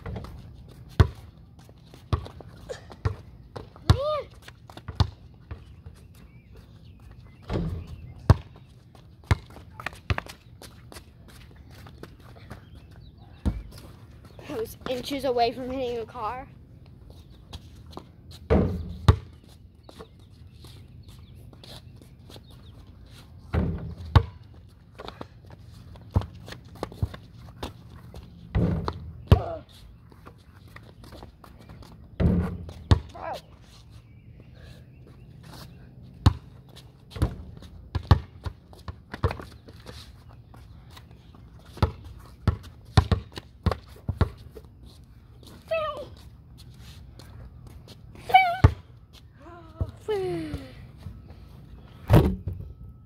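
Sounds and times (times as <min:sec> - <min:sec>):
basketball bouncing on ground: 0:00.0 - 0:05.9, 0:07.4 - 0:11.0, 0:12.1 - 0:15.1, 0:18.0 - 0:19.5, 0:23.5 - 0:29.7, 0:31.0 - 0:33.5, 0:36.2 - 0:39.6, 0:41.6 - 0:44.6, 0:48.4 - 0:48.9, 0:52.1 - 0:52.7
basketball bouncing thuds: 0:18.5 - 0:19.3, 0:23.5 - 0:24.4, 0:28.5 - 0:29.6, 0:32.2 - 0:33.2, 0:37.2 - 0:39.4, 0:41.8 - 0:44.4
basketball thudding against hoop: 0:28.5 - 0:29.6, 0:32.2 - 0:33.1, 0:52.1 - 0:52.6.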